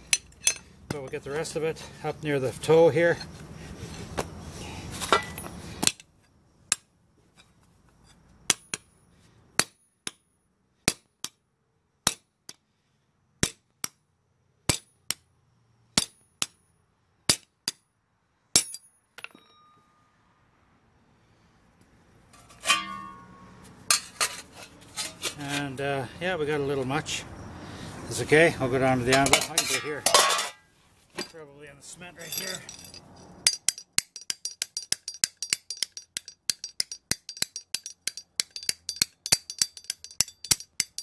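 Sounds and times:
hammer striking steel rod: 0:22.4 - 0:24.1, 0:33.4 - 0:41.0
metal clattering: 0:22.4 - 0:25.4, 0:29.1 - 0:30.6, 0:32.2 - 0:41.0.

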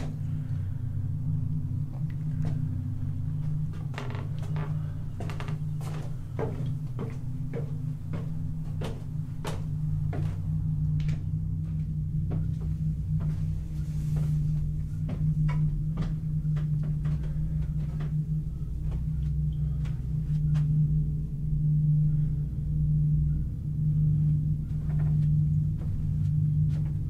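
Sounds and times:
low drone: 0:00.0 - 0:27.0
sharp knocks and creaks: 0:03.7 - 0:10.3.

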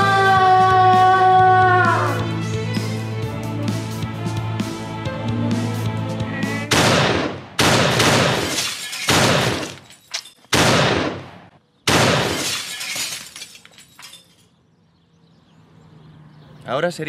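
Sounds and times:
music: 0:00.0 - 0:07.2.

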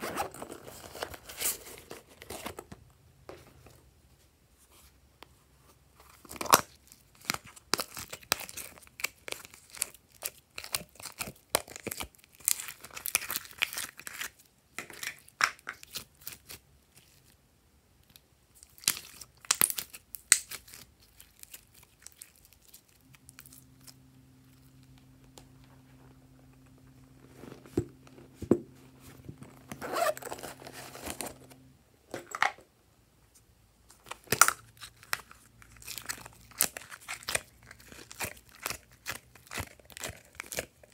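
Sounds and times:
faint low hum: 0:20.0 - 0:40.9.

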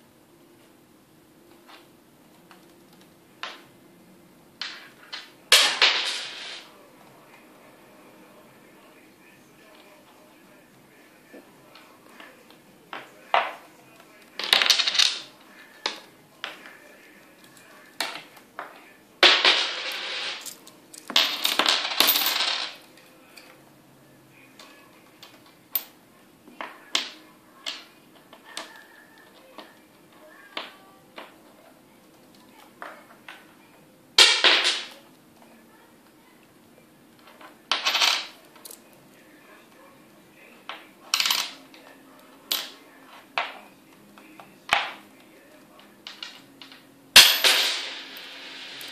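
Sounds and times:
coins clinking on wooden desk: 0:04.6 - 0:06.7, 0:14.4 - 0:16.6, 0:17.4 - 0:22.8, 0:34.2 - 0:35.0, 0:37.2 - 0:38.8, 0:40.7 - 0:41.7, 0:46.0 - 0:48.9
coin spinning on tabletop: 0:19.5 - 0:20.5, 0:47.4 - 0:48.9.

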